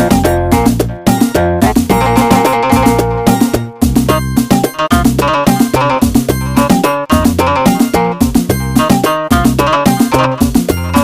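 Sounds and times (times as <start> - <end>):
dance music on keyboard: 0.0 - 11.0.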